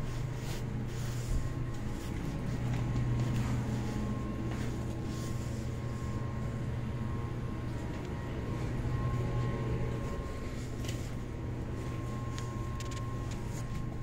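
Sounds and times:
faint high whine: 0.0s - 14.0s
low machine hum: 0.0s - 14.0s.

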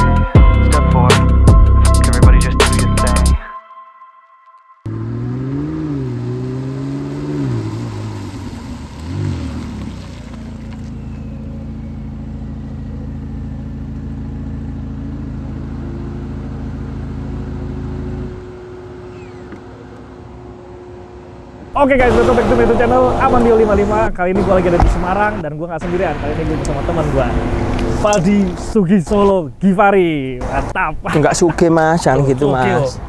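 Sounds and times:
car engine revving: 4.9s - 29.2s.

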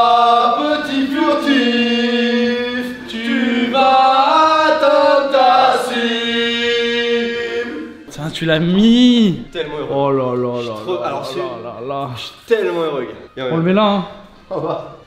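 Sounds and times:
choir singing in harmony: 0.0s - 8.8s.

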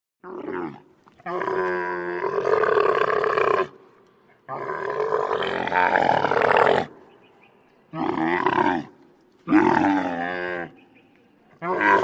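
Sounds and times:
camel calling: 7.9s - 12.0s.

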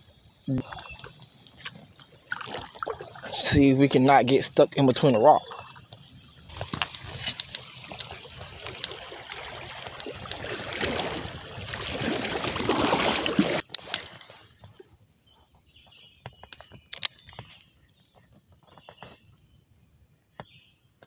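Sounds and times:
river current rushing and gurgling: 0.0s - 14.8s.

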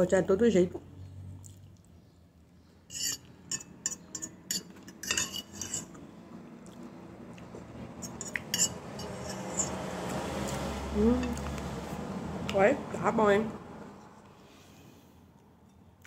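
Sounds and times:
fork clinking against glass bowl: 2.9s - 5.9s, 8.0s - 9.7s.

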